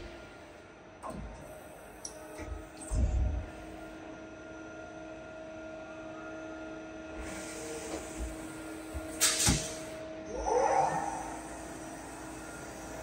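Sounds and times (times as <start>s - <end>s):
lathe humming with thin whine: 11.1s - 13.0s.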